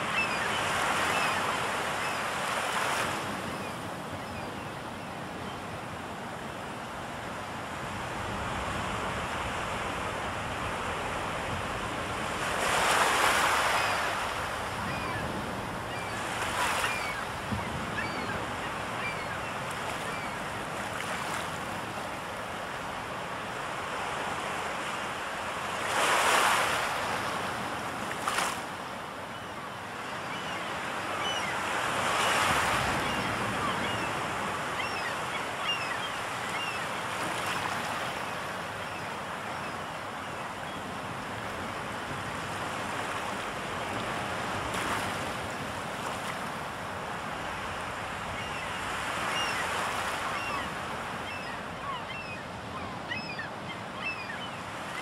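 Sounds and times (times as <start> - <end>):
faint high bird calls: 0.0 - 2.3, 15.9 - 20.4, 29.3 - 40.8, 48.4 - 55.0.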